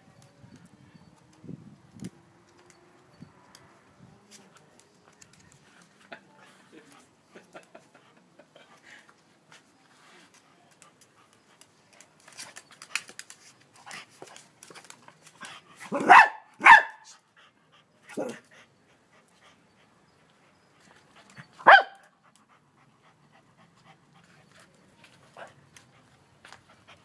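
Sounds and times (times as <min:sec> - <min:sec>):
small dog barking: 0:15.9 - 0:17.1, 0:21.6 - 0:22.0.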